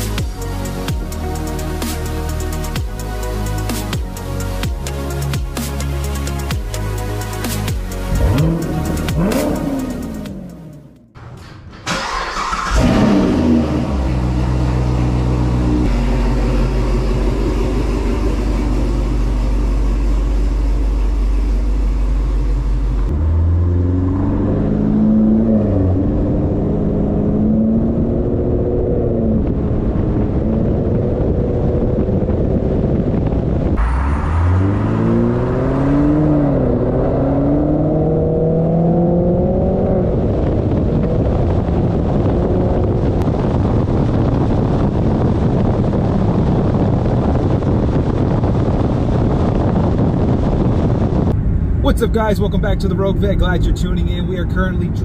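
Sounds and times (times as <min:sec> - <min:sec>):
car engine starting: 0:00.0 - 0:55.0
car accelerating through gears: 0:08.1 - 0:11.1, 0:12.0 - 0:15.8, 0:23.1 - 0:31.8, 0:33.8 - 0:43.2
car engine idling: 0:11.9 - 0:23.1.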